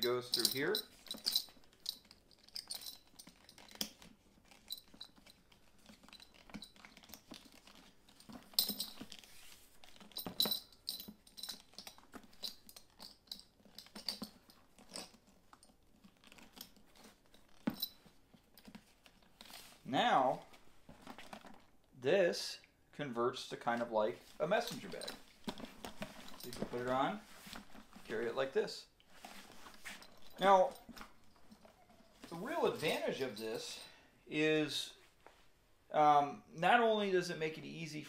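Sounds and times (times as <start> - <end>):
metal buckle clinks: 0.0 - 19.2, 24.6 - 26.9, 29.8 - 33.9
leather rubbing and creaking: 0.1 - 19.9, 29.0 - 33.4.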